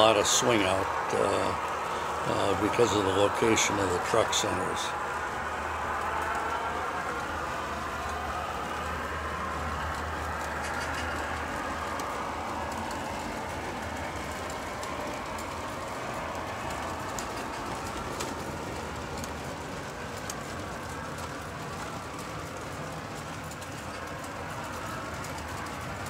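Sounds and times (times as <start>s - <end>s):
gas turbine whine from speaker: 0.0s - 26.0s
toy train motors running: 0.0s - 26.0s
wheels clicking on plastic track: 0.0s - 26.0s.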